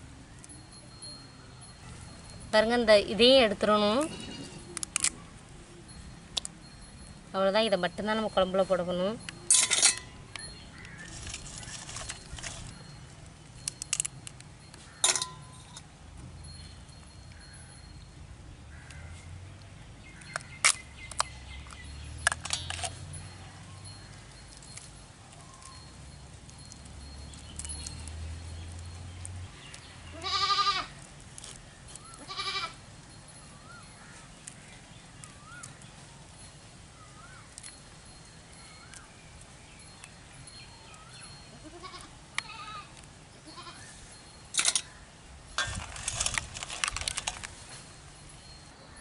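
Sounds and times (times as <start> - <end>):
shell and metal clinks: 5.9 - 18.0, 20.2 - 29.9, 42.4 - 49.0.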